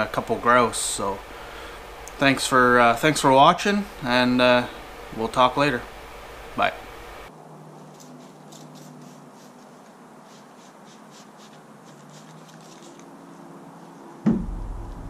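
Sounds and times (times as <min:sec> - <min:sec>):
spray bottle hissing: 0:08.3 - 0:13.1
loud thump: 0:14.2 - 0:15.0.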